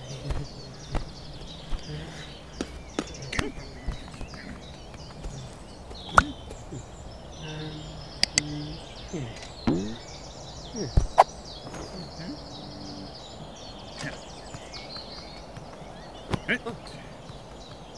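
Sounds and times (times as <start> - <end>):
birds chirping: 0.0 - 17.9
low murmured character voices: 0.0 - 17.9
sharp clicks: 8.2 - 8.5.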